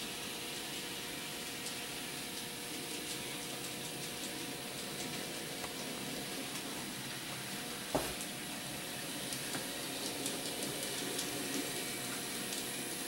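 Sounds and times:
knock: 0:07.9 - 0:08.2.

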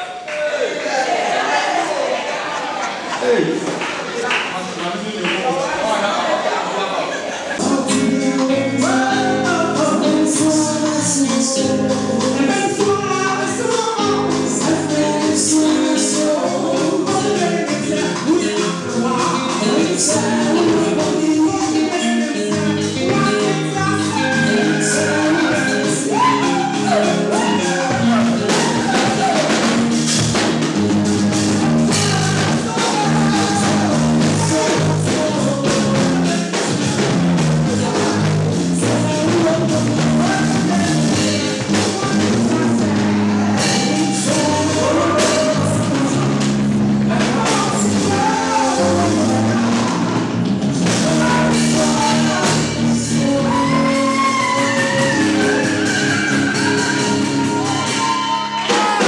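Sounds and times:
song with singing bass and percussion: 0:07.5 - 0:59.0.

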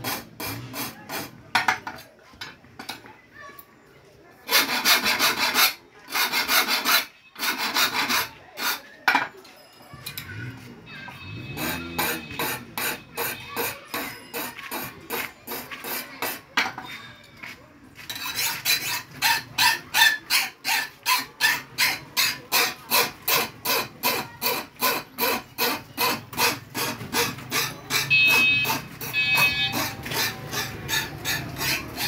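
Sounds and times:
file rasping on knife blade: 0:00.0 - 0:01.4, 0:04.5 - 0:09.0, 0:11.5 - 0:16.4, 0:18.1 - 0:32.0.

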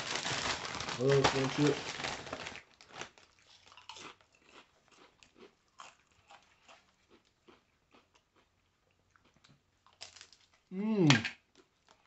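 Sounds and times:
person chewing crunchy chips: 0:00.0 - 0:12.0.

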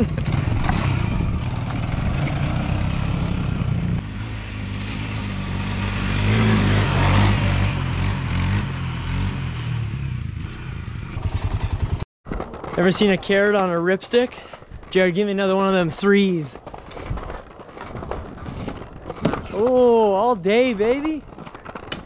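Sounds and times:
quad engine revving and idling: 0:00.0 - 0:12.0.

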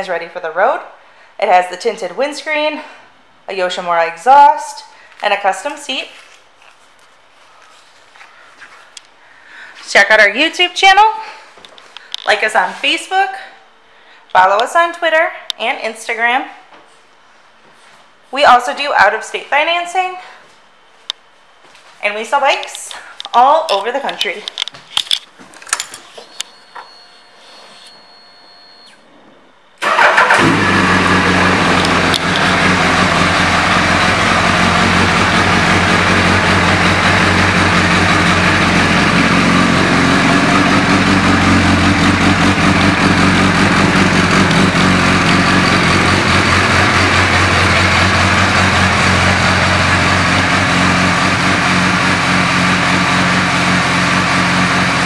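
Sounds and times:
motorcycle engine idling: 0:29.8 - 0:54.1.

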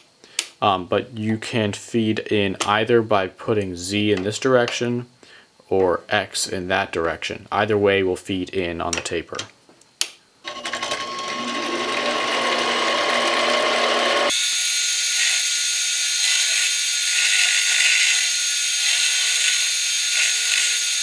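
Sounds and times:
lathe motor and gear whine: 0:10.5 - 0:21.0
lathe tool cutting metal: 0:10.5 - 0:21.0.

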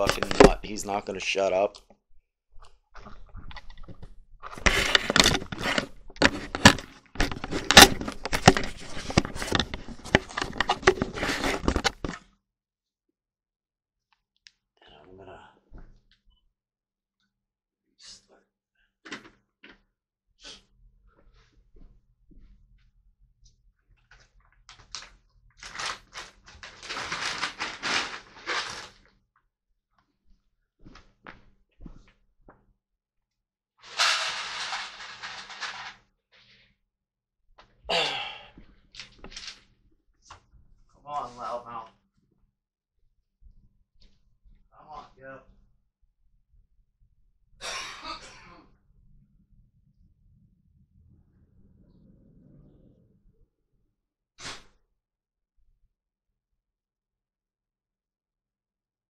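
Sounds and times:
camera handling rustling and knocks: 0:00.0 - 0:00.6, 0:03.0 - 0:12.2
dry pet food rattling poured: 0:33.9 - 0:35.9.

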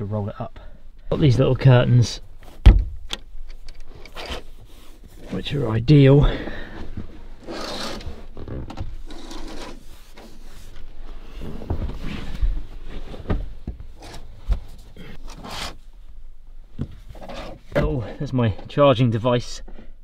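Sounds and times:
dull knocks: 0:02.6 - 0:03.0
curtains rubbing and sliding: 0:07.4 - 0:08.4.

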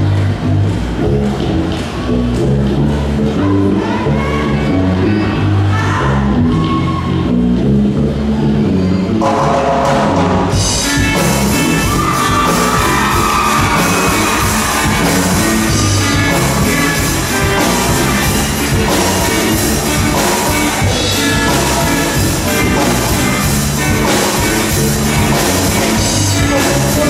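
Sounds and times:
electric guitars: 0:00.0 - 0:27.0
drum kit: 0:09.2 - 0:27.0
person singing: 0:09.2 - 0:27.0.

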